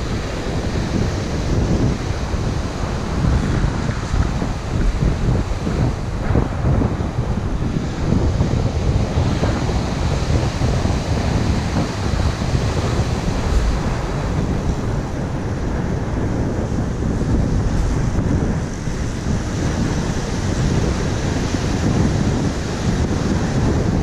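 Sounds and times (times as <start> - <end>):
wind buffeting microphone: 0.0 - 24.0.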